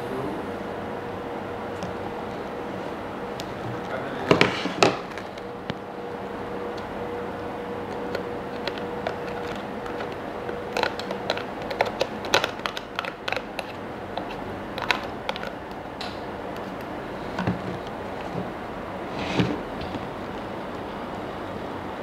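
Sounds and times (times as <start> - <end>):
spoon clicking on plastic bowls: 7.9 - 15.8.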